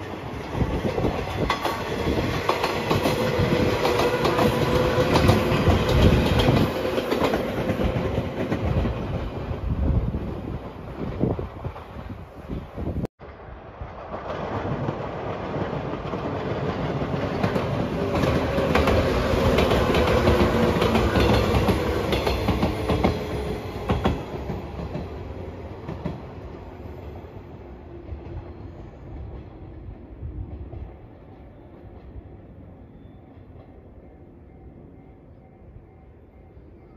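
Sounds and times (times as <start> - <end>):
train wheels clacking: 0.4 - 9.4, 14.1 - 27.1.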